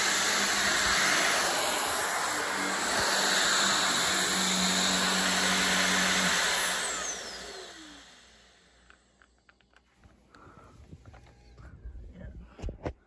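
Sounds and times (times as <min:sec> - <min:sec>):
motor whine spinning down: 0:00.0 - 0:09.1
vacuum cleaner running: 0:00.0 - 0:09.1.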